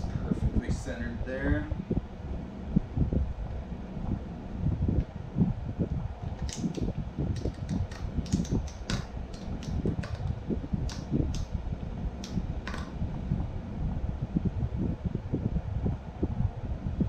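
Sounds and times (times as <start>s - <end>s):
low thumps and rustling: 2.7s - 13.5s
buckle strap clicking: 6.4s - 11.5s, 12.2s - 12.9s.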